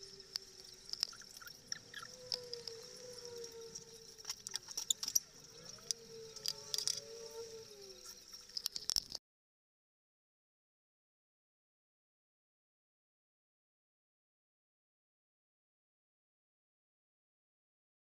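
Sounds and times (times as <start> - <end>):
faint wavering tone: 0.0 - 9.0
steady high-pitched whine: 0.0 - 9.2.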